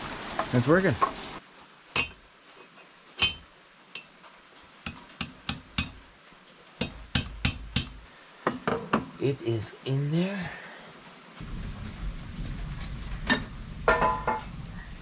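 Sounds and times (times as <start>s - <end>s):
hammer striking metal: 6.8s - 8.0s.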